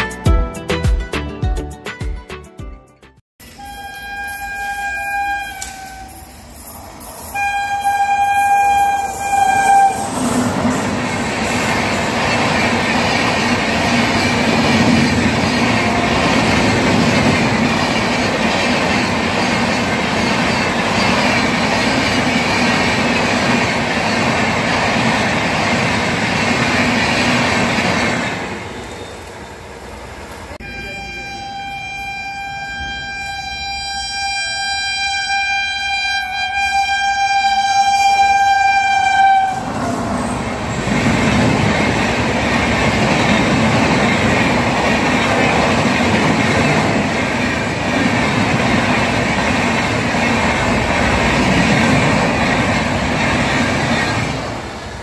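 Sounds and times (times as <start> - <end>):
electric locomotive horn: 3.4 - 6.6, 7.2 - 10.5, 15.7 - 16.7, 30.6 - 40.3
locomotive passing close by: 3.7 - 32.4, 39.1 - 55.0
train wheels clattering on rail: 8.2 - 29.4, 39.2 - 55.0.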